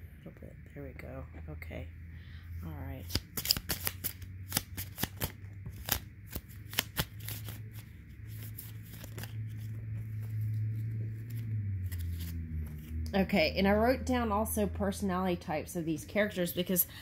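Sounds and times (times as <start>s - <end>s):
steady low hum: 0.0s - 17.0s
cards shuffling and snapping: 3.1s - 13.0s.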